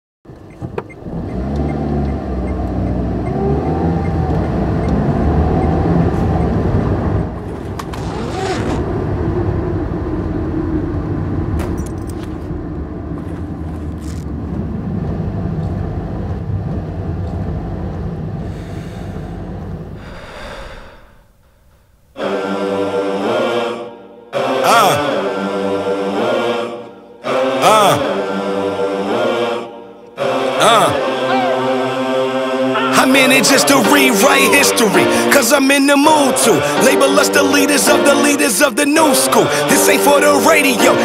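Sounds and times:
car driving on wet road: 0:00.4 - 0:20.0.

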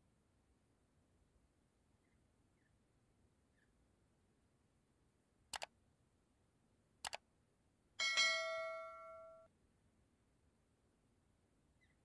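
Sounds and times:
mouse double-clicks: 0:05.5 - 0:05.7, 0:07.0 - 0:07.2
notification bell chime: 0:08.0 - 0:09.5.

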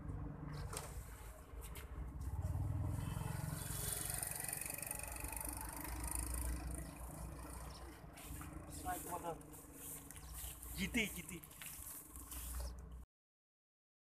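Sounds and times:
fishing reel whirring: 0:03.7 - 0:07.7.

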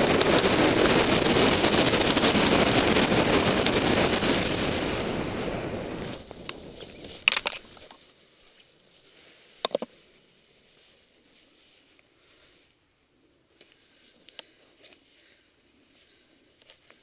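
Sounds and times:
wind rushing over microphone: 0:00.0 - 0:07.9
faint rustle: 0:05.9 - 0:17.0
harness gear clicks and knocks: 0:06.0 - 0:08.1, 0:09.6 - 0:10.0.

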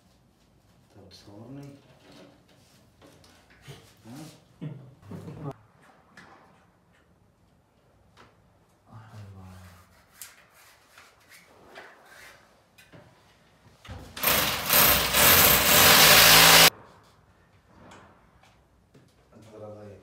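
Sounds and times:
electric drill boring into tile: 0:14.2 - 0:16.7.

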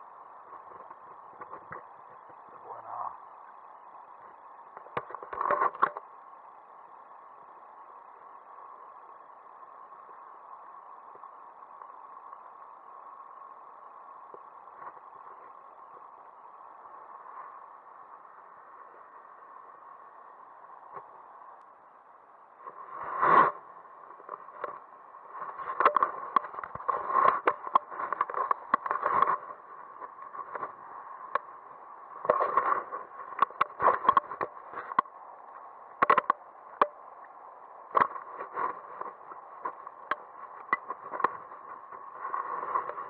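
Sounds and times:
rustling through dry grass: 0:03.4 - 0:43.0.

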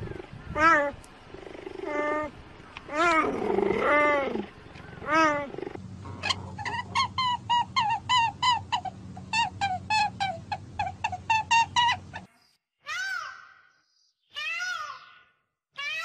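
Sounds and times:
wild cat meow-like calls: 0:02.9 - 0:06.7
wild cat chirping: 0:02.9 - 0:12.3.

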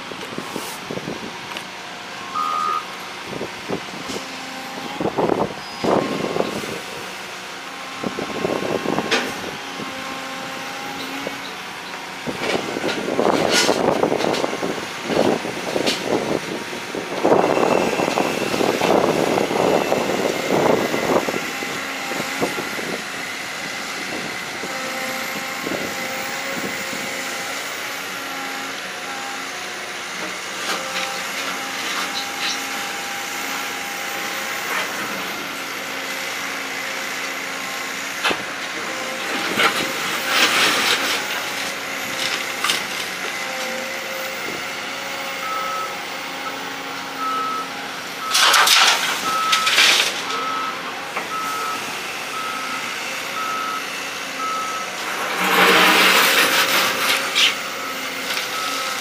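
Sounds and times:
excavator engine running: 0:00.0 - 0:59.0
scraping and rattling of earth: 0:12.3 - 0:16.2, 0:38.3 - 0:43.9, 0:48.3 - 0:50.7, 0:55.0 - 0:59.0.

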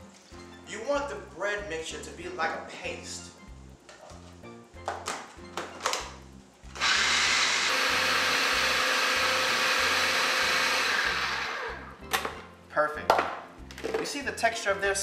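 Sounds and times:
food processor running: 0:06.8 - 0:12.0.

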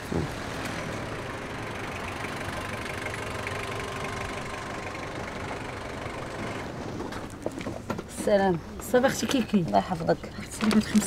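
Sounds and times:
car engine running at low revs: 0:00.0 - 0:08.2.

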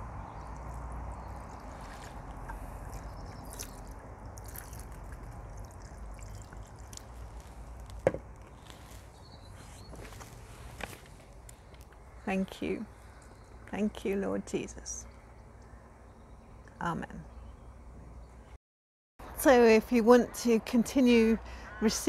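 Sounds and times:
water pouring into glass vase: 0:00.4 - 0:07.9.

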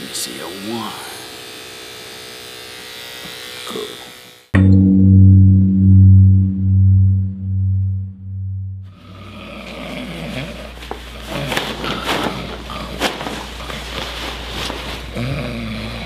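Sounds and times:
steady low hum: 0:04.6 - 0:09.4.

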